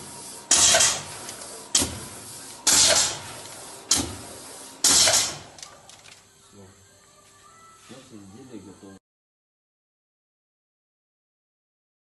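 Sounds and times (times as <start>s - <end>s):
machine hissing bursts: 0.0s - 5.7s.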